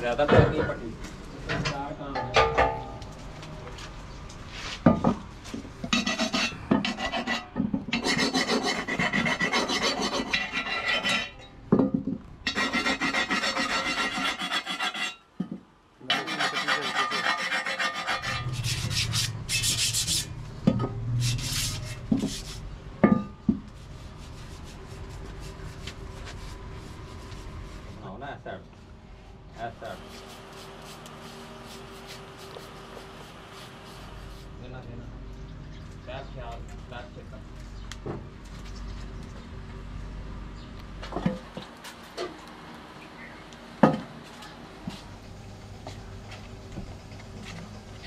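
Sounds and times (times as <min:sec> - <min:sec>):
sharp metal knocks: 0:02.1 - 0:03.1
file rasping on cast iron: 0:05.9 - 0:11.4, 0:12.5 - 0:15.2, 0:16.0 - 0:20.3, 0:21.2 - 0:22.6.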